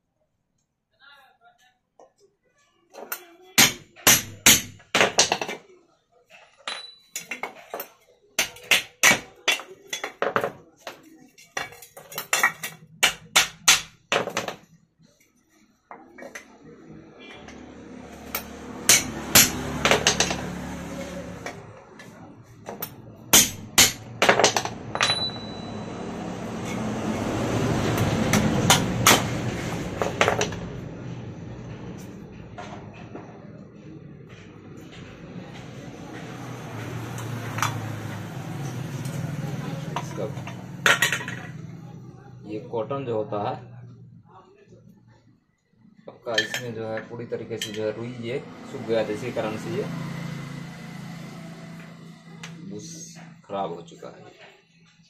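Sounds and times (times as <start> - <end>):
hammer striking metal punch: 3.6 - 5.4, 12.4 - 14.5, 18.3 - 20.5, 22.8 - 25.8, 28.3 - 29.4.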